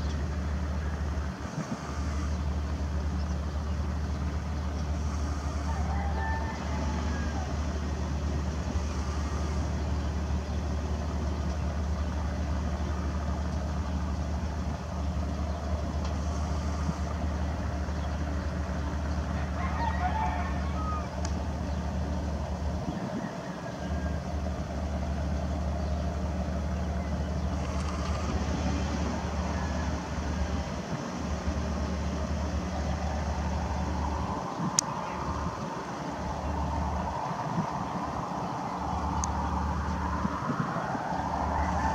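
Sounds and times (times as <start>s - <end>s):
steady low rumble: 0.0s - 41.9s
rooster crowing faintly: 5.4s - 7.9s, 19.3s - 21.6s, 22.9s - 24.7s, 29.1s - 30.8s, 32.6s - 41.9s.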